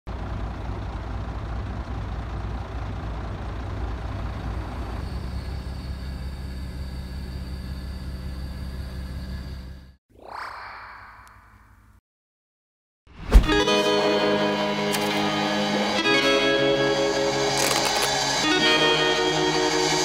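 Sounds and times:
truck engine running: 0.1 - 10.0
short sound rising in pitch: 10.2 - 11.8.

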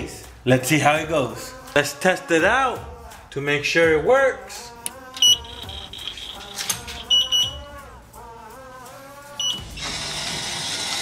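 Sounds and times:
background music: 0.0 - 11.0
vending machine beeps: 5.2 - 7.6, 9.4 - 9.9.

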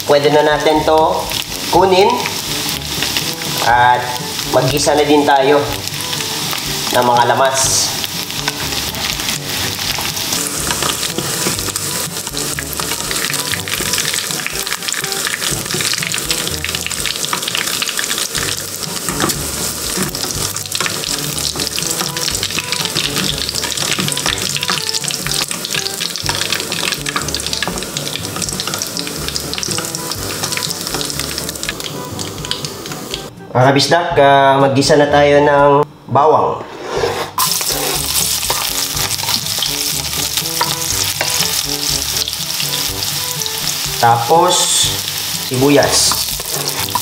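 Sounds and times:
pork sizzling in hot fat: 0.0 - 33.3, 37.4 - 47.0
wooden spatula stirring: 17.0 - 31.8.

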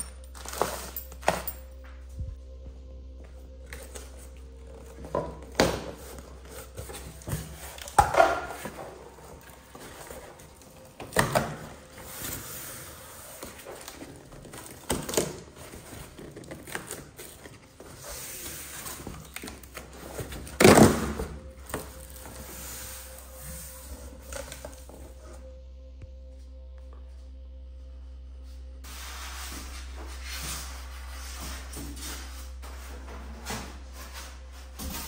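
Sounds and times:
cardboard and foam packing handled: 0.2 - 2.4, 3.6 - 25.5.

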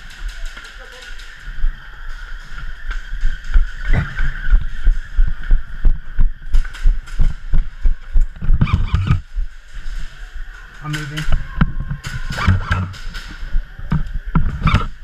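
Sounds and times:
running footsteps on concrete: 0.1 - 9.6.

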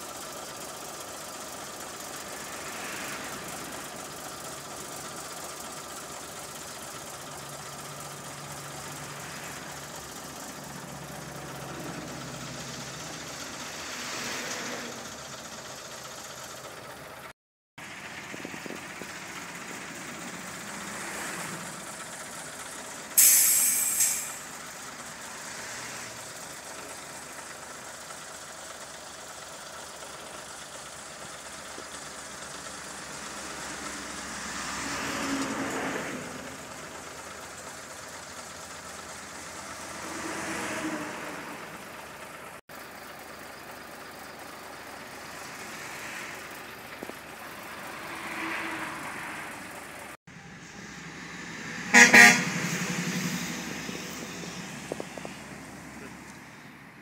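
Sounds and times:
heavy trucks passing: 0.0 - 57.0
vehicle horn toots: 51.8 - 52.9.

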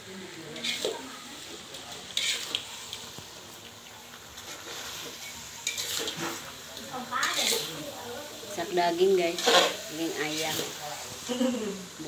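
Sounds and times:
low sizzle of frying: 0.0 - 12.0
metal spoon scraping a wok: 0.5 - 3.1, 4.3 - 10.8.

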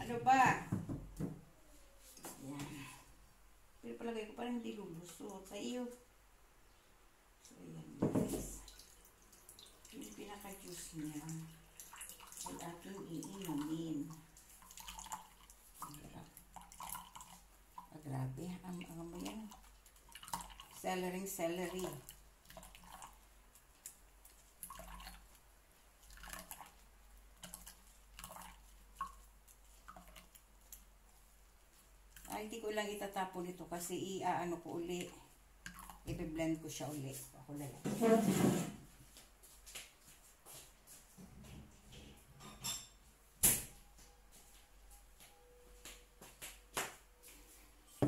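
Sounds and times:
juice dripping into a mug: 8.6 - 18.0, 18.6 - 25.4, 26.0 - 26.8, 27.4 - 30.9, 35.0 - 36.1.

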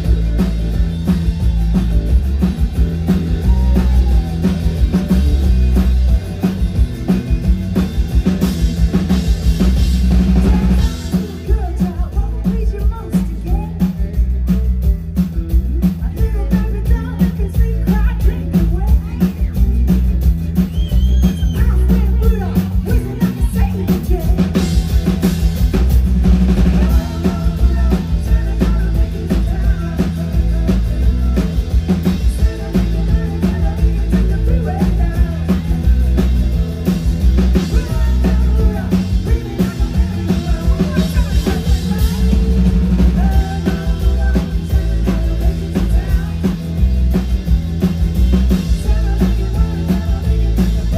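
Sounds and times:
bass: 0.0 - 50.9
drum kit: 0.0 - 50.9
guitar: 0.0 - 50.9
person singing: 10.0 - 14.3, 15.8 - 19.8, 21.2 - 25.1, 26.5 - 47.2, 48.3 - 50.9.

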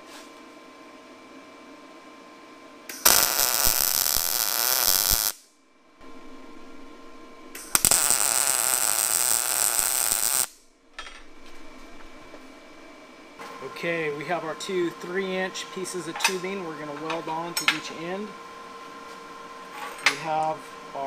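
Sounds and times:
welder arc sizzling: 2.9 - 6.3, 7.4 - 10.6.

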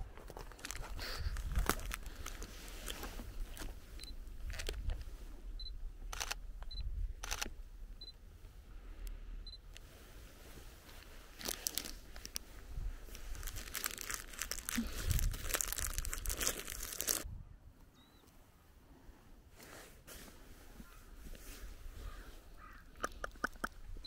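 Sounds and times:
plastic snack packet crinkling: 0.3 - 3.7, 11.4 - 12.4, 13.1 - 17.2
camera focus beeps: 5.6 - 7.4
camera shutter clicks: 7.2 - 7.5.

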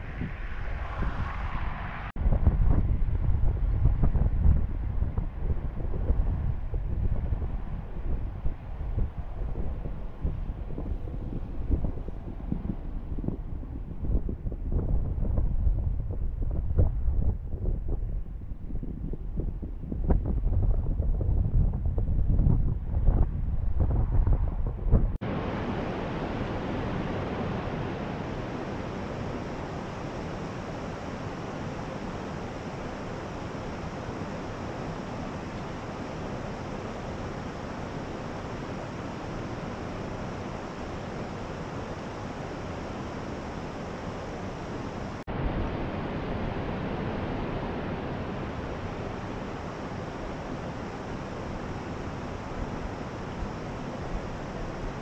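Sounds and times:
rushing water of stream: 25.2 - 55.0.

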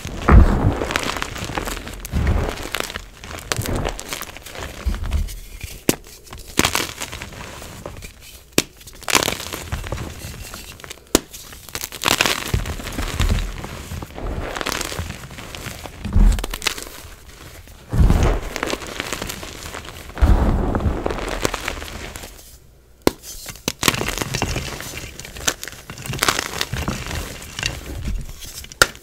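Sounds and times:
dull low thumps: 0.1 - 1.0, 20.2 - 21.2
chalk pieces snapping: 23.0 - 29.0.

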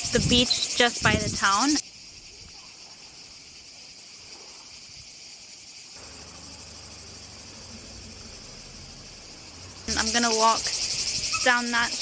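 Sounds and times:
cicadas chorus: 0.0 - 12.0
faint low rumble: 6.0 - 9.9.

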